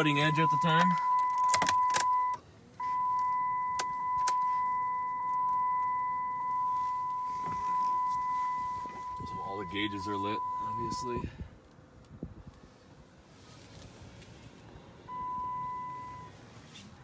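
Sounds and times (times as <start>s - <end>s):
high-pitched electronic warning tone: 0.0s - 11.2s.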